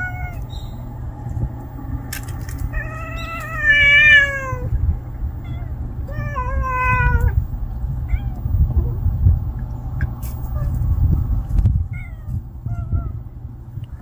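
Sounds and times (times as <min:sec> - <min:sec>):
cat yowling: 0:00.0 - 0:00.5, 0:02.7 - 0:04.8, 0:05.4 - 0:07.4, 0:08.0 - 0:08.5, 0:11.9 - 0:13.2.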